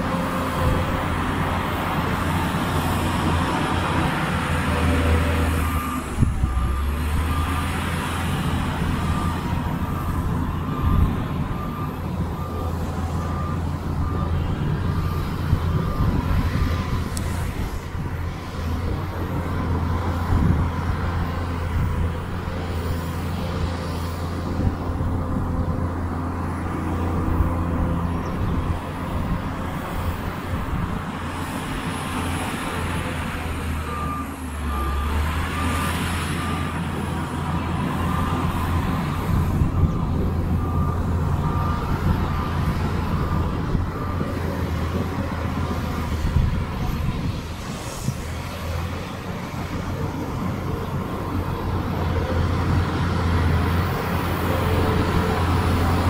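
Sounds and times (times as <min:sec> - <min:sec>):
reversing alarm beeping: 0:00.0 - 0:47.0, 0:49.9 - 0:56.0
heavy diesel machinery running: 0:00.0 - 0:56.0.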